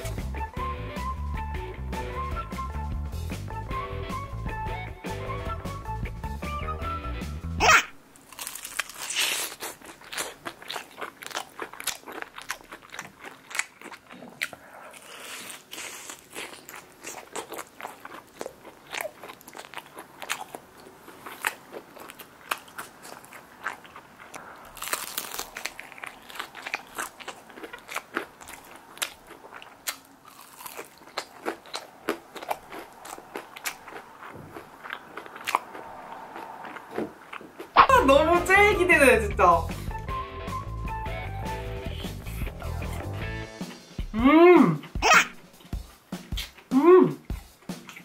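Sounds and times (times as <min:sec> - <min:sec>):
crunchy chewing: 0:08.2 - 0:37.8, 0:44.8 - 0:48.0.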